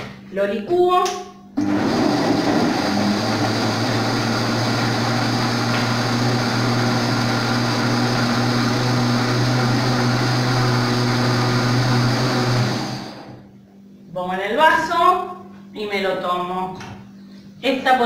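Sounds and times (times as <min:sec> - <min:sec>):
blender motor drone: 0:01.6 - 0:13.4.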